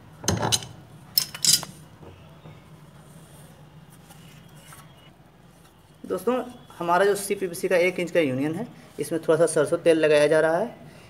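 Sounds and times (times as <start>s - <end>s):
wrench clinking on metal fitting: 0.3s - 1.8s.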